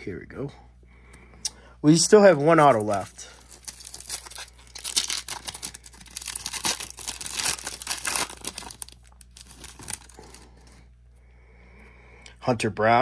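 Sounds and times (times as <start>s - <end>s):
wrapper tearing and crinkling: 2.6s - 10.5s.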